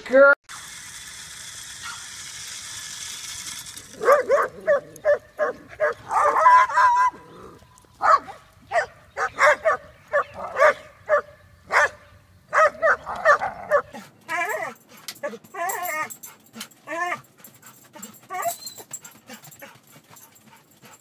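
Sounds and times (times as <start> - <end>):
dogs barking: 4.0 - 21.0.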